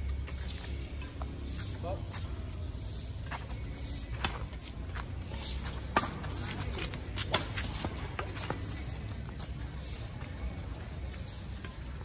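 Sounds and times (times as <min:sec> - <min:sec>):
shoes shuffling on concrete: 0:00.0 - 0:12.0
rackets striking shuttlecock: 0:02.7 - 0:09.6.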